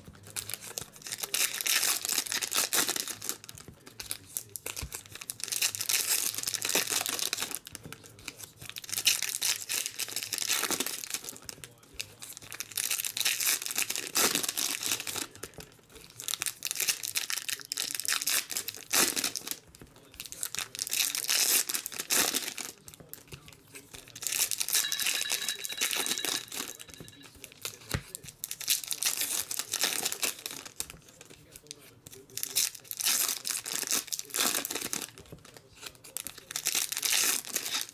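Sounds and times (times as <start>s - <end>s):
foil wrappers tearing and crinkling: 0.2s - 19.6s, 20.2s - 23.4s, 27.4s - 37.9s.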